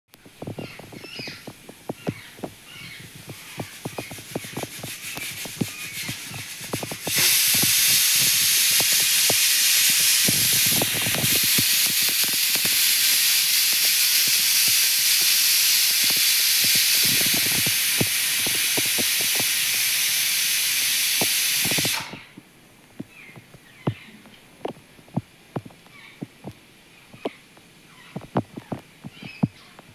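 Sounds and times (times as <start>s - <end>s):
birds chirping: 0.2s - 9.2s, 23.0s - 29.9s
loud steady hiss: 0.2s - 23.6s.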